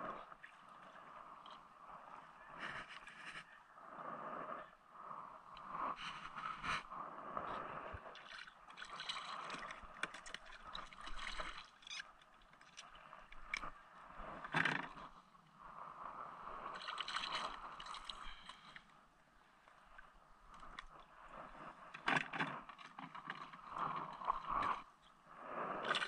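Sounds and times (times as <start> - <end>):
water lapping at hull: 0.0 - 26.0
fishing line scraping and rustling: 2.6 - 3.6, 7.6 - 15.1, 16.6 - 18.8.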